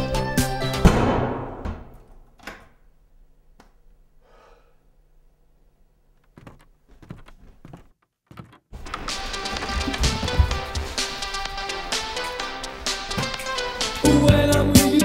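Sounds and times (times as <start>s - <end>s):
music: 0.0s - 1.0s, 8.8s - 15.0s
soft knocks: 6.3s - 11.2s
house door shutting: 6.3s - 11.5s, 12.8s - 13.8s.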